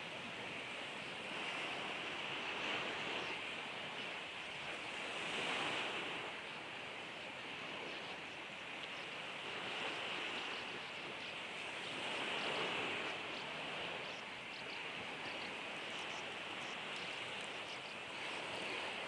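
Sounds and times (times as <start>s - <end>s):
sea surf: 0.0s - 19.0s.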